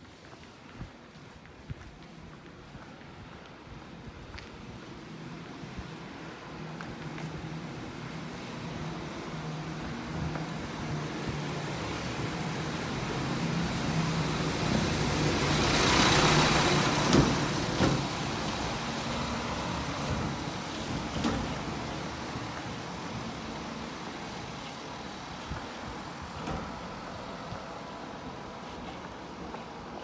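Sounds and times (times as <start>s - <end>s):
vehicle engine passing: 13.1s - 18.0s.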